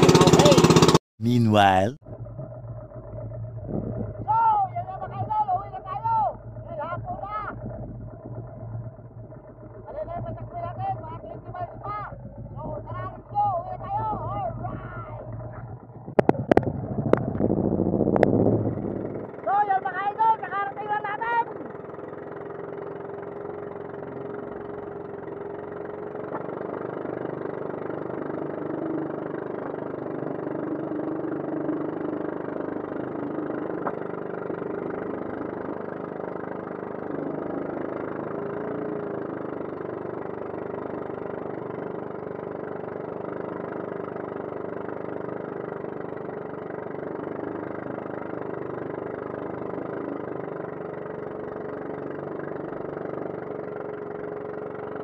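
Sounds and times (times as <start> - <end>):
boat engine droning: 0.0 - 55.0
wind noise: 16.1 - 19.2.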